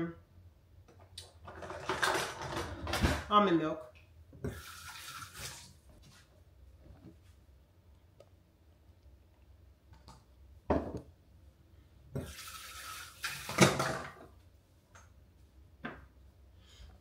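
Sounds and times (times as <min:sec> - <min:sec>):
kitchen tap running: 0:04.4 - 0:05.8, 0:12.1 - 0:14.2
things knocking on counter: 0:10.7 - 0:11.0.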